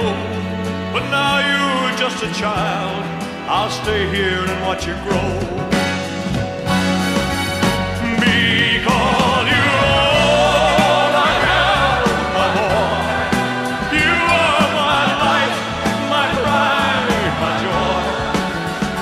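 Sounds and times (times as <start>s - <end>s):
steady bass line: 2.3s - 19.0s
wordless choir vocals: 8.0s - 19.0s.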